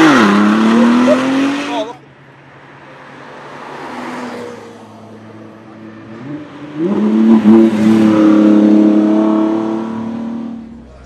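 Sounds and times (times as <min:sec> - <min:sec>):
car engine accelerating: 0:00.0 - 0:02.0.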